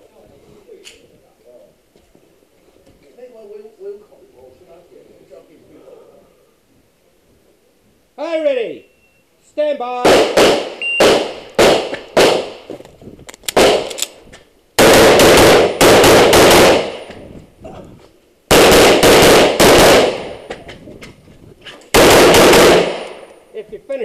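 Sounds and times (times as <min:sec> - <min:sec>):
pistol shots echoing: 0:10.0 - 0:12.7, 0:13.5 - 0:14.2, 0:14.8 - 0:17.2, 0:18.5 - 0:20.5, 0:21.9 - 0:23.4.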